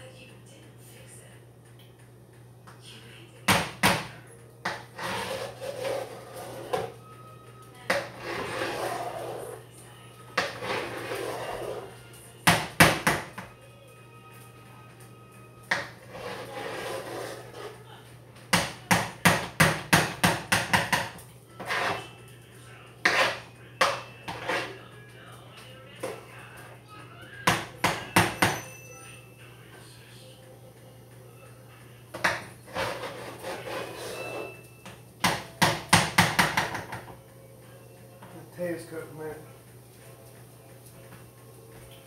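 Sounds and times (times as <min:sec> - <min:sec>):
utensil scraping in a pot: 0:04.6 - 0:07.0, 0:07.9 - 0:09.7, 0:10.4 - 0:12.0, 0:15.7 - 0:17.9, 0:21.5 - 0:22.2, 0:23.0 - 0:24.9, 0:32.4 - 0:34.7
utensil knocking on a pot: 0:18.5 - 0:21.2, 0:27.5 - 0:28.7, 0:35.2 - 0:37.1
utensil knocking against pan: 0:35.2 - 0:37.1.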